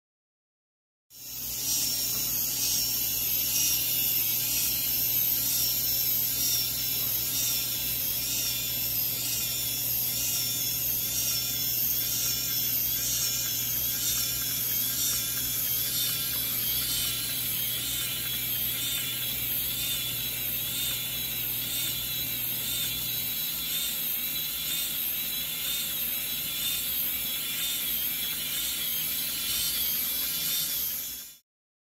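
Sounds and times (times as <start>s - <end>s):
small electric motor whirring: 1.1s - 31.4s
gears ticking rapidly: 1.2s - 31.4s.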